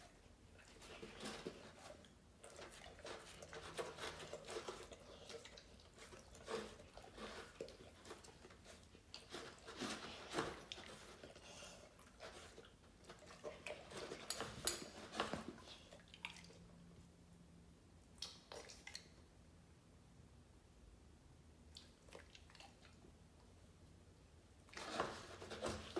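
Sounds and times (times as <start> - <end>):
dog chewing food: 0.0 - 16.7.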